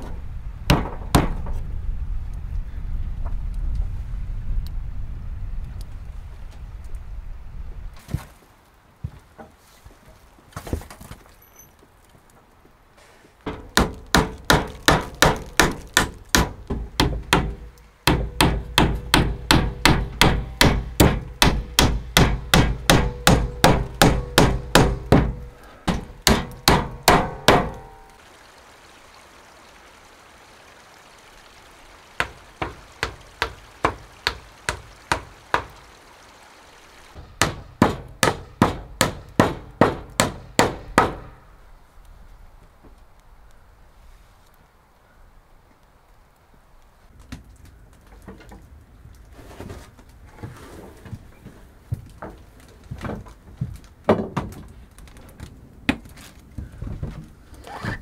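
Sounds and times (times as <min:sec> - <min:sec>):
hatchet striking wooden board: 0:13.7 - 0:27.9, 0:32.2 - 0:35.7, 0:37.4 - 0:41.3.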